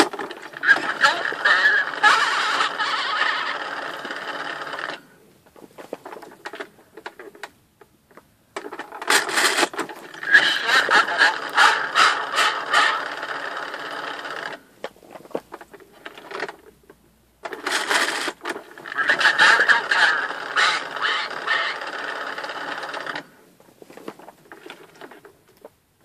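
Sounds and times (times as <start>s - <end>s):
toy recorded voice speaking: 0.6s - 4.0s, 10.2s - 13.3s, 18.8s - 22.4s.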